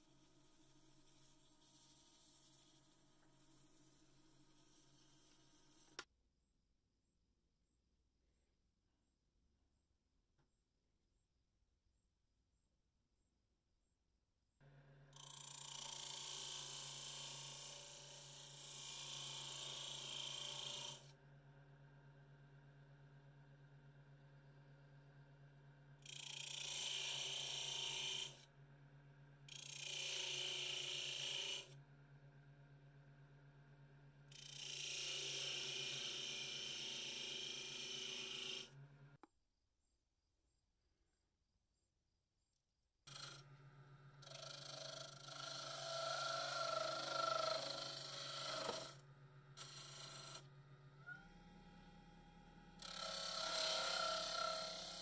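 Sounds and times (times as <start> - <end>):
blade scraping wood on lathe: 0.0 - 6.0, 29.5 - 31.7, 34.3 - 38.8, 44.2 - 49.0, 49.6 - 50.5, 52.8 - 55.0
lathe humming: 44.2 - 49.0, 52.8 - 55.0.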